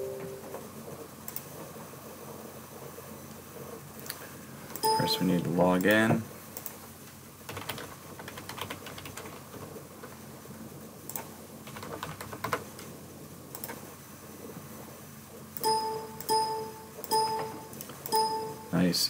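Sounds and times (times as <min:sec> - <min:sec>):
computer keyboard typing: 0:07.5 - 0:09.5, 0:11.1 - 0:12.7.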